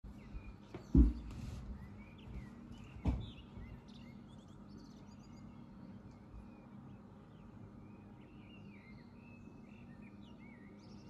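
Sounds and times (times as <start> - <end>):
birds chirping faintly: 0.0 - 11.0
low room hum: 0.1 - 11.0
dull thump: 0.9 - 1.5, 3.0 - 3.8.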